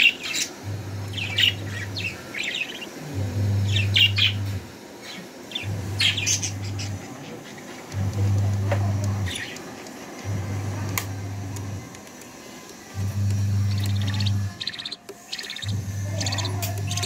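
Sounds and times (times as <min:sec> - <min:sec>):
budgerigar chicks chirping: 0:00.0 - 0:09.6, 0:13.0 - 0:17.0
low steady hum: 0:12.6 - 0:17.0.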